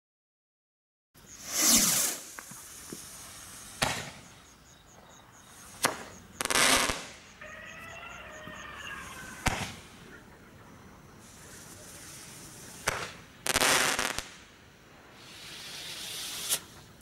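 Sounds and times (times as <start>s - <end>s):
firework rocket whoosh: 1.2s - 4.4s, 5.5s - 7.3s, 8.8s - 10.0s, 11.2s - 17.0s
firework bangs: 1.3s - 7.4s, 9.0s - 10.0s, 11.2s - 17.0s.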